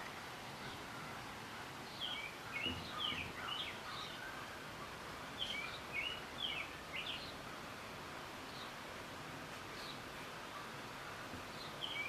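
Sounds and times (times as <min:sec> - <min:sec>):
steady background hiss: 0:00.0 - 0:12.0
small songbird chirping: 0:00.6 - 0:07.5, 0:08.4 - 0:08.8, 0:09.7 - 0:10.8, 0:11.5 - 0:12.0.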